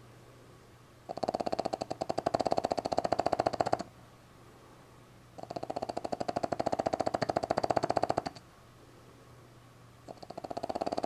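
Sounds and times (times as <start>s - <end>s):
puppy snoring: 1.1s - 3.9s, 5.4s - 8.4s, 10.1s - 11.0s.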